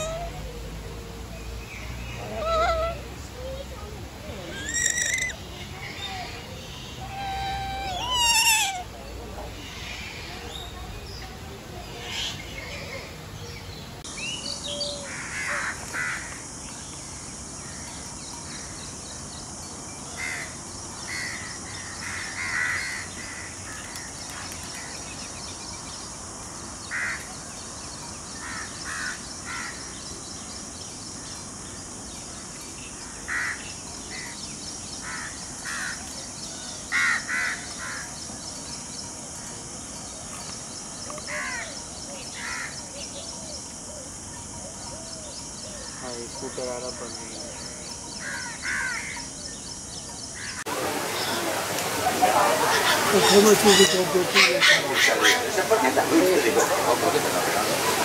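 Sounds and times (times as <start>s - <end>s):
birds calling: 0.0s - 19.3s, 32.2s - 58.0s
steady high hiss: 0.0s - 58.0s.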